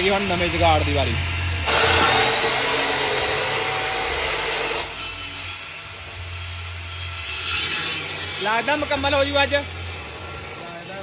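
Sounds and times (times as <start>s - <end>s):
angle grinder grinding steel: 0.0s - 11.0s.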